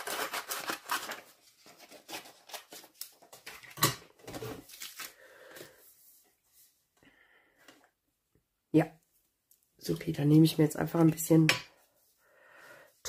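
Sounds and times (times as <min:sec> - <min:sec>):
scissors snipping paper: 0:00.0 - 0:03.0.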